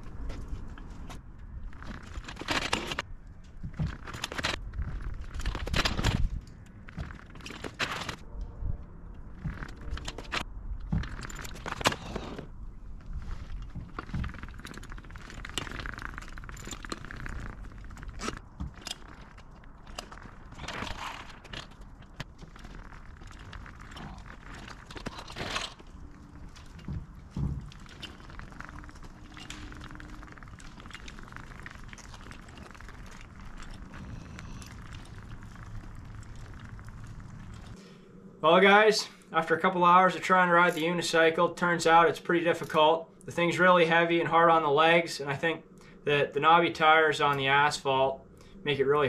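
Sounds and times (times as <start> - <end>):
low rumble: 3.0 - 38.4.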